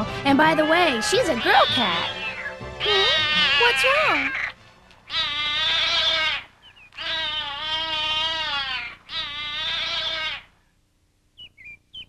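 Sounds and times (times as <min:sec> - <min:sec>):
cat yowling: 0:00.4 - 0:04.5, 0:05.1 - 0:10.5.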